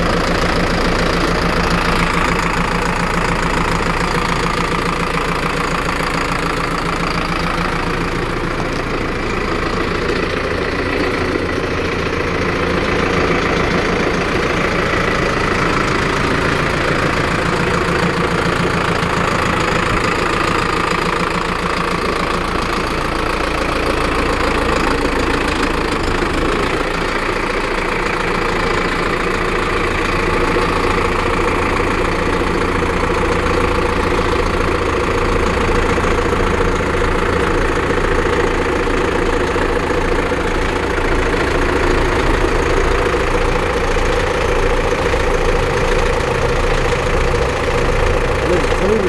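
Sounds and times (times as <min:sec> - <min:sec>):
tractor diesel engine idling: 0:00.0 - 0:49.0.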